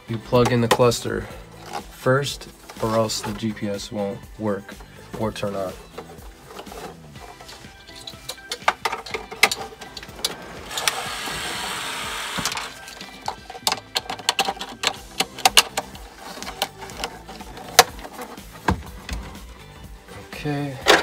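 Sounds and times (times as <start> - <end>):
scraping rustle: 5.5 - 8.2
plastic clicks and knocks: 12.4 - 19.2.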